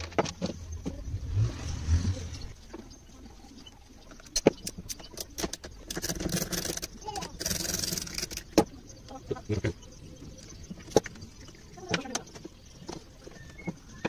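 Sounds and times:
low hum: 0.0 - 7.0
plastic and metal parts clicking: 4.2 - 8.7.

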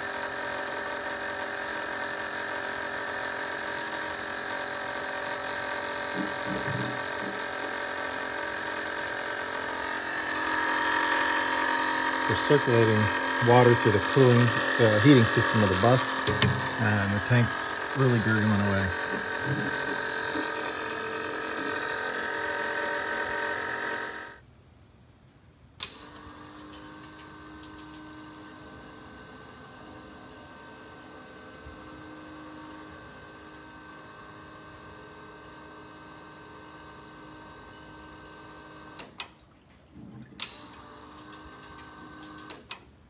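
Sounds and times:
coolant gurgling in a tank: 0.0 - 22.4, 36.2 - 42.4
pump hum: 0.0 - 24.4, 25.8 - 42.6.

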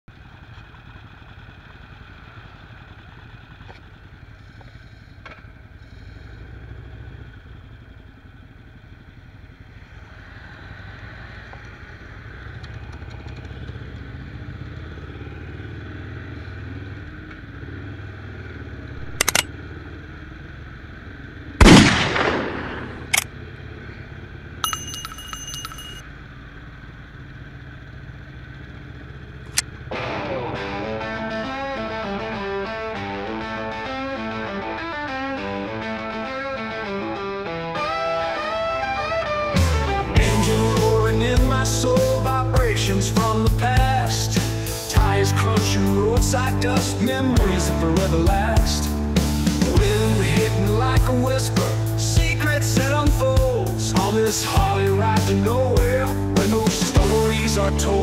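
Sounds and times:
motorcycle engine running: 0.1 - 58.0
sharp clicks: 19.0 - 19.5, 21.6 - 23.3
loud sudden crack: 21.6 - 23.2.

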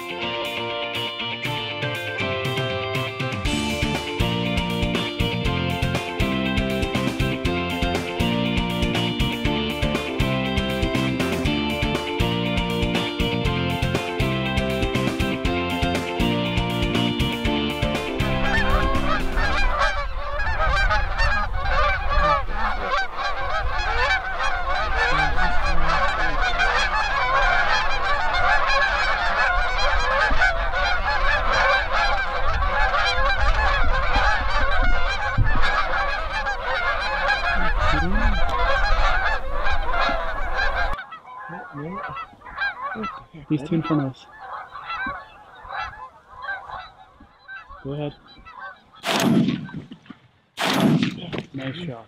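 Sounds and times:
guitar music: 0.0 - 20.0
geese honking: 0.0 - 50.0.

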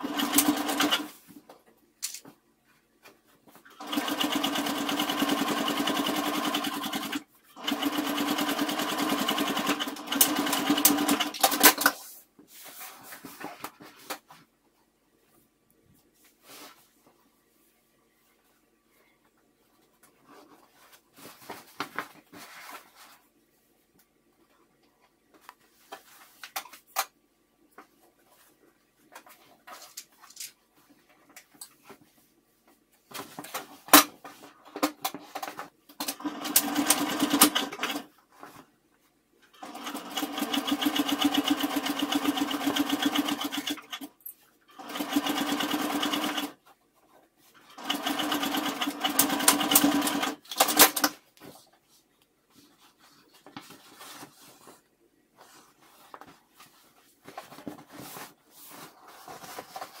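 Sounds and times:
sewing machine stitching: 0.0 - 1.1, 3.7 - 11.9, 36.0 - 38.1, 39.5 - 46.6, 47.6 - 51.1
fabric handling: 51.3 - 60.0.

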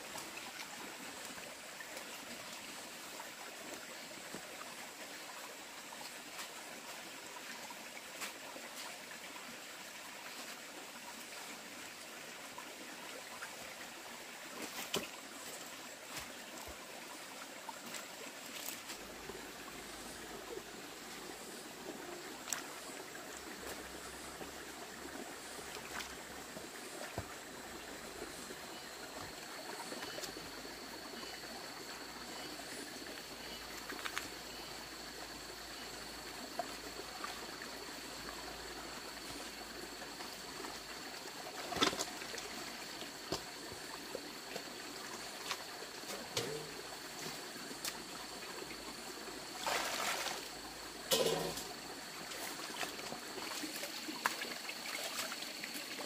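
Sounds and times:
stream trickling over stones: 0.0 - 56.0
clothes splashing in water: 49.6 - 50.5.

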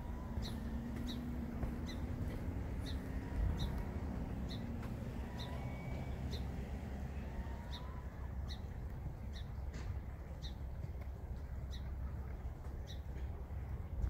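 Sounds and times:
bird chirping: 0.0 - 6.6.

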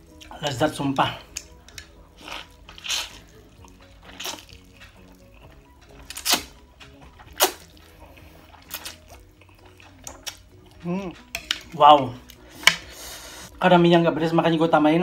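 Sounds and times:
soft background music: 0.0 - 15.0
person slurping noodles: 2.2 - 3.3.

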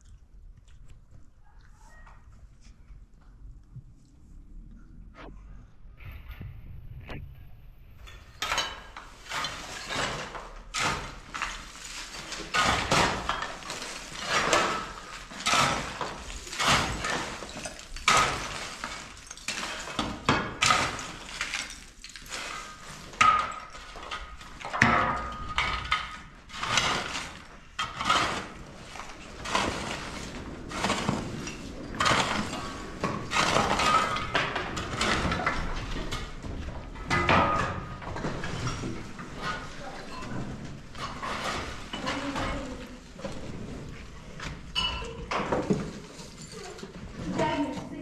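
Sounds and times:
gritty scraping and crunching: 7.9 - 44.8.

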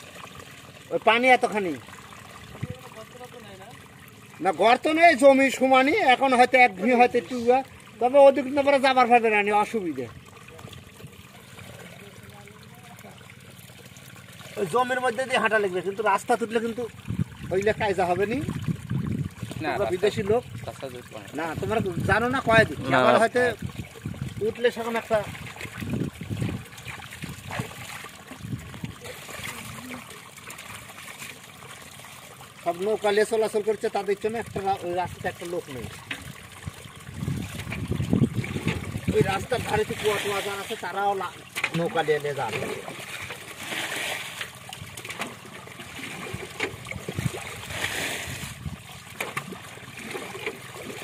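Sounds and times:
small splashes and clicks: 0.0 - 51.0
water trickling: 0.0 - 51.0
hands splashing in muddy water: 42.1 - 51.0.

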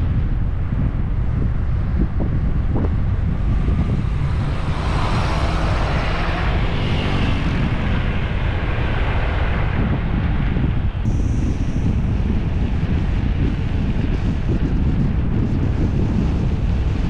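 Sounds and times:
wind buffeting microphone: 0.0 - 17.0
vehicle passing by: 3.2 - 10.2.

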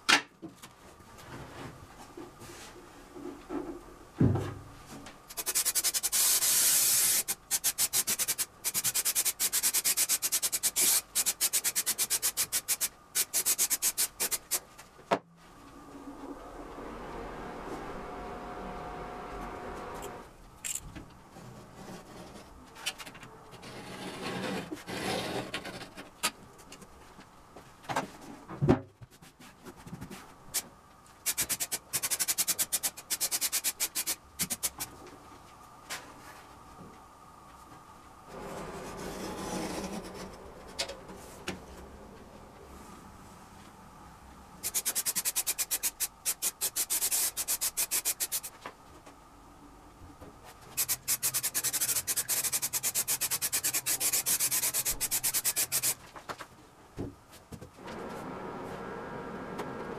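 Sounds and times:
sanding pad scratching wood: 50.8 - 56.0.

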